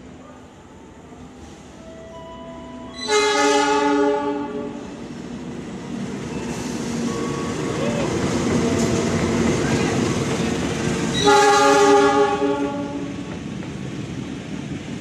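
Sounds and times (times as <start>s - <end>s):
train rumbling: 0.0s - 15.0s
locomotive horn blast: 2.9s - 4.8s, 11.1s - 13.2s.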